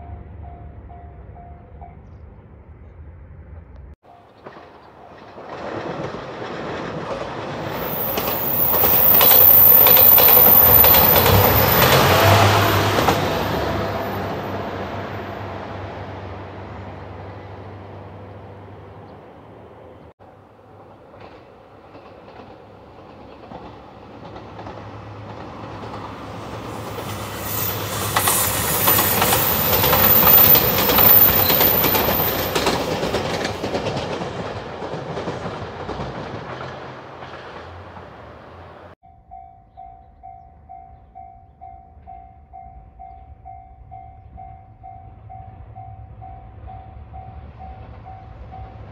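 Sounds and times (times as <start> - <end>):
train passing: 0.0 - 48.9
wheel clatter over rail joints: 4.2 - 18.2, 20.4 - 39.0.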